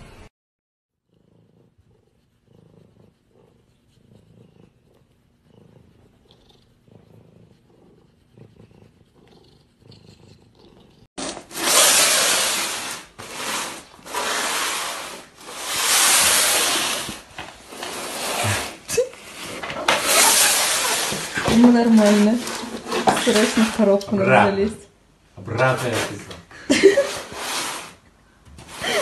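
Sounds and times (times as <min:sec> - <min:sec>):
cat purring: 0:01.1 - 0:11.1.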